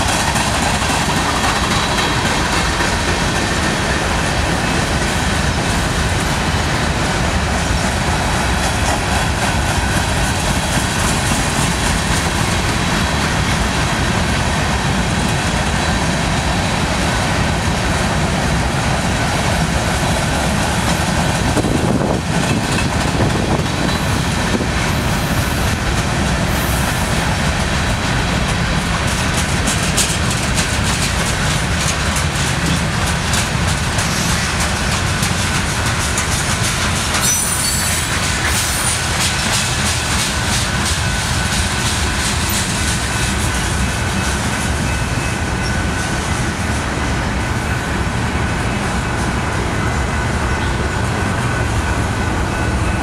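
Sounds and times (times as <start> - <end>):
wheels clicking over rail joints: 0.0 - 47.0
train wheels rumbling on rail: 0.0 - 53.0
faint high wheel squeal: 37.2 - 39.0.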